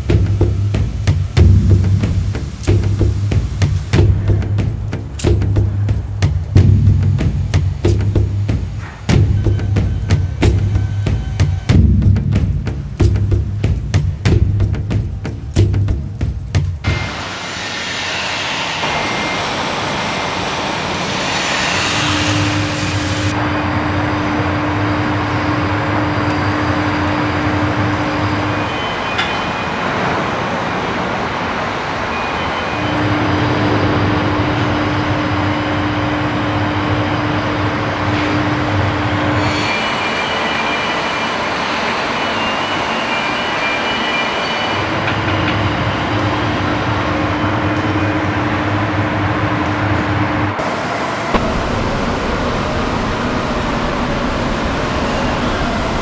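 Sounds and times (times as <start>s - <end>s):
machinery noise: 16.8s - 49.8s, 50.4s - 56.0s
motor hum: 50.6s - 56.0s.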